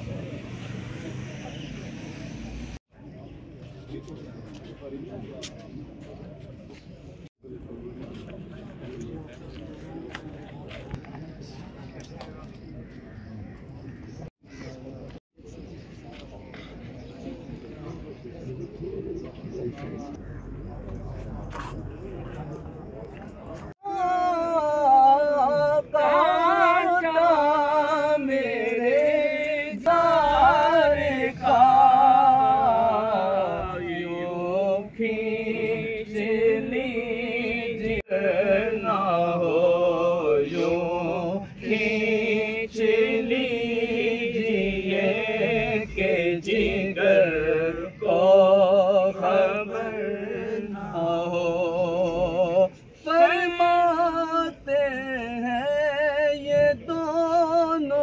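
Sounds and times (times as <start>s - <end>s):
person singing devotional song: 23.8s - 58.0s.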